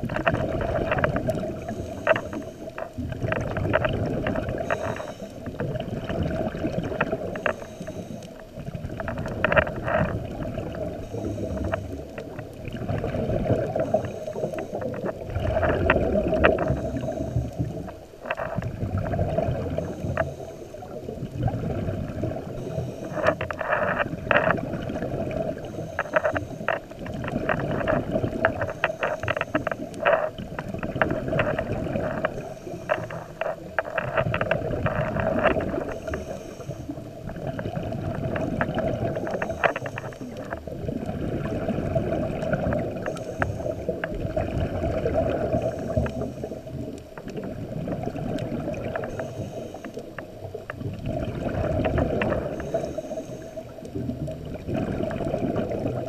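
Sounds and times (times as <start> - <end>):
exhaled bubbles gurgling: 0.0 - 56.0
sharp crackling clicks: 0.0 - 56.0
diver breathing through regulator: 0.4 - 3.0, 4.3 - 5.8, 7.2 - 8.4, 10.8 - 12.3, 12.9 - 40.6, 43.0 - 44.1, 45.2 - 46.9, 48.9 - 50.3, 51.6 - 53.8.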